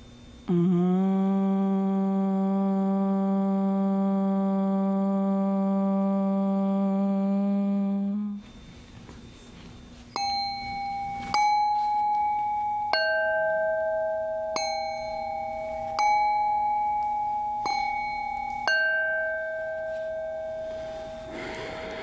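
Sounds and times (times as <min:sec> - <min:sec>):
metal singing bowls ringing: 0:08.4 - 0:22.0.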